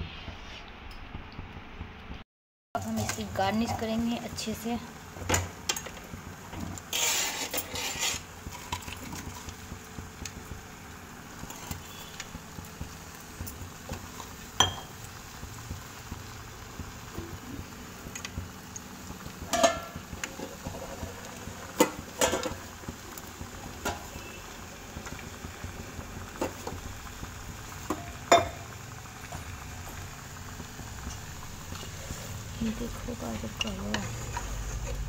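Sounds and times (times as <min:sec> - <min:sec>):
metal utensils clinking on steel pan: 0:19.5 - 0:20.0.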